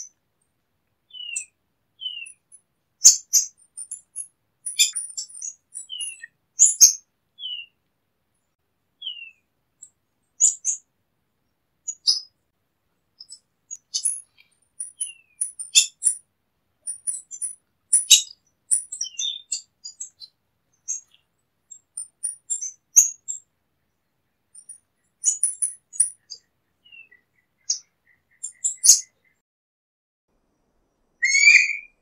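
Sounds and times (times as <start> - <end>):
bird high thin chirps: 1.1 - 7.8, 9.0 - 9.4, 10.4 - 10.8, 11.9 - 12.3, 13.2 - 16.2, 16.8 - 23.4, 24.6 - 29.4, 31.2 - 32.0.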